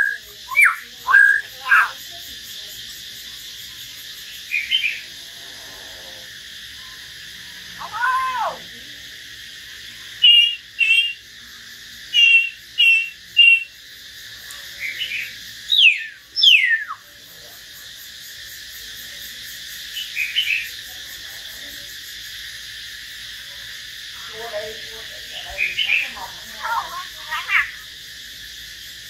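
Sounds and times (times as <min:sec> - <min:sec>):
birds whistling calls: 0:00.0 - 0:02.0, 0:10.2 - 0:11.2, 0:12.1 - 0:13.8, 0:14.9 - 0:17.0.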